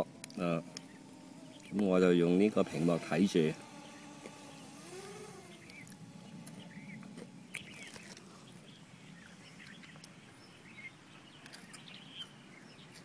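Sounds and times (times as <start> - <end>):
faint low steady hum: 0.0 - 12.9
birds chirping: 0.0 - 13.0.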